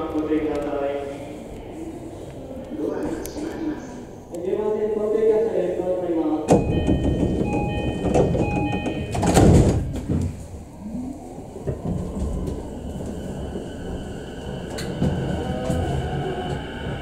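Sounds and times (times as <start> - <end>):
low hum of standing train: 0.0 - 17.0
electronic door chime: 6.5 - 9.3
sliding doors rushing and thudding: 6.5 - 10.4.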